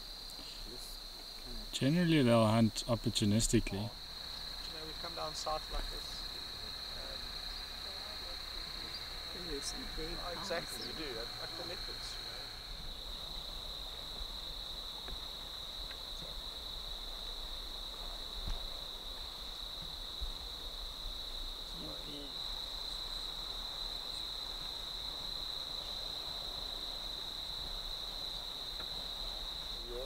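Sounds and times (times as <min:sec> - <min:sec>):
insects trilling: 0:00.0 - 0:30.0.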